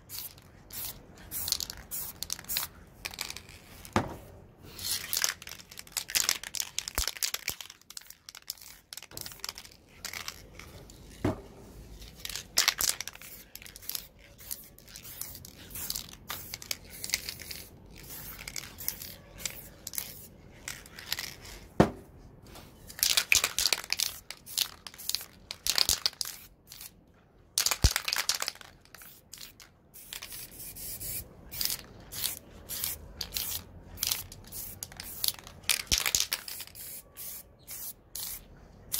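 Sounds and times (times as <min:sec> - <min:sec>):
spray can hissing bursts: 0:00.1 - 0:03.4, 0:29.0 - 0:38.5.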